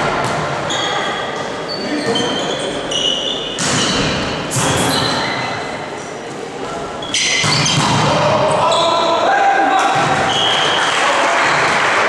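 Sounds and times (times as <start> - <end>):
voices in sports hall: 0.0 - 12.0
shoes squeaking on court: 0.2 - 6.1, 6.9 - 9.0
ball hits: 3.6 - 4.8, 7.4 - 8.3.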